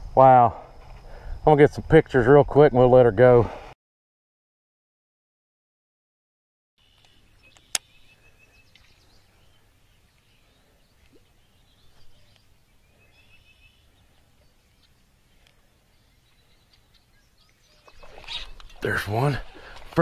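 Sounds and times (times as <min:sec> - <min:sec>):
faint outdoor ambience: 0:00.0 - 0:03.8, 0:06.8 - 0:20.0
birds chirping and trilling: 0:06.8 - 0:20.0
sharp click: 0:07.0 - 0:07.9.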